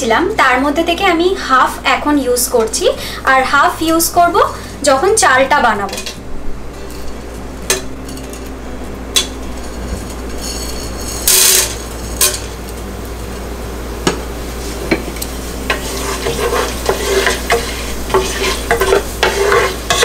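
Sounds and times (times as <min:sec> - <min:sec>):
spices sizzling in hot oil: 0:06.6 - 0:20.0
wooden spatula stirring in pot: 0:15.6 - 0:20.0.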